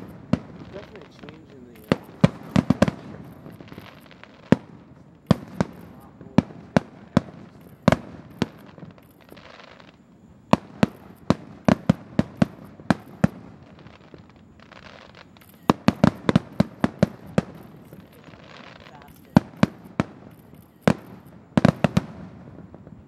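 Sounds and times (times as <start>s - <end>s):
fireworks banging: 0.0s - 23.0s
fireworks hissing: 0.0s - 23.0s.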